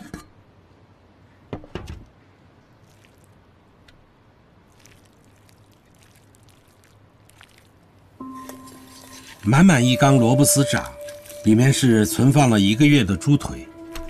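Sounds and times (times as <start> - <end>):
wet squishing: 2.7 - 3.6, 4.6 - 9.7, 10.6 - 11.9.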